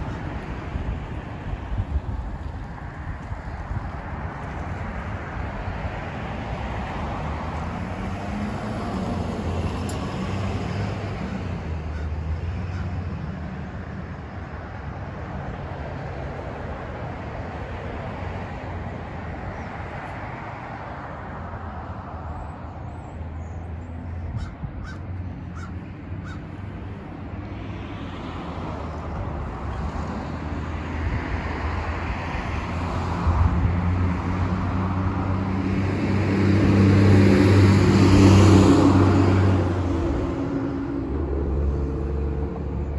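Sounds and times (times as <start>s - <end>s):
road traffic: 0.0s - 42.9s
wind: 0.0s - 42.9s
crows cawing: 11.9s - 13.0s, 24.3s - 26.6s.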